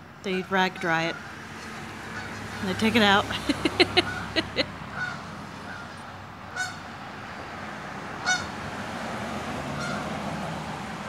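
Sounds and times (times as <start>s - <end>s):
goose honking: 0.6s - 6.8s, 8.2s - 8.5s, 9.8s - 10.1s.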